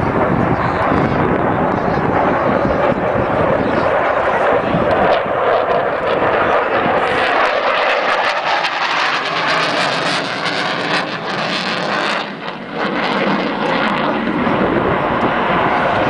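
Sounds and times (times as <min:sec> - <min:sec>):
jet engines rushing: 0:00.0 - 0:16.0.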